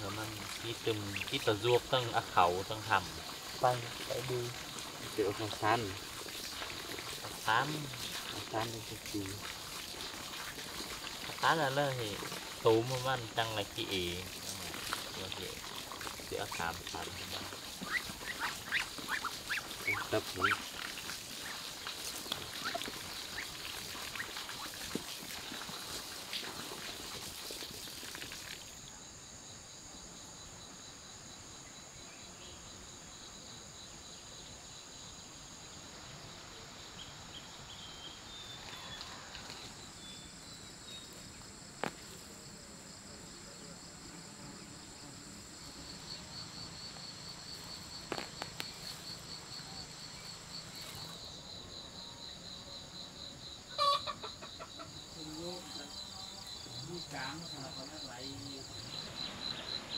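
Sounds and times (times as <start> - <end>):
insects chorus: 0.0 - 59.9
pulsing insect trill: 0.0 - 59.9
ducks pecking at feed: 0.2 - 1.6, 14.3 - 27.3.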